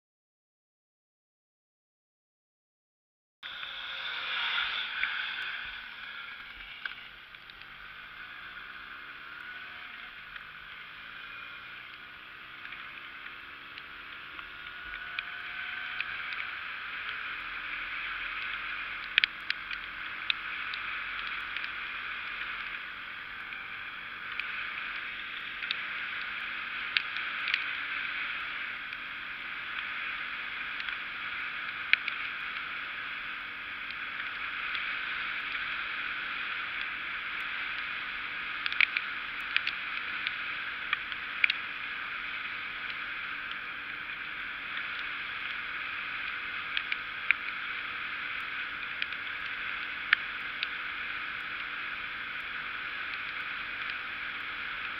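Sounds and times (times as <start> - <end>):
moped engine accelerating: 3.4 - 45.8
wind and tyres on wet road: 3.4 - 54.9.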